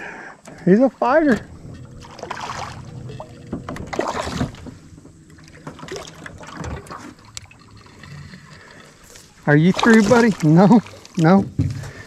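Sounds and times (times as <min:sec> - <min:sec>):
fish splashing at water surface: 0:05.7 - 0:11.2.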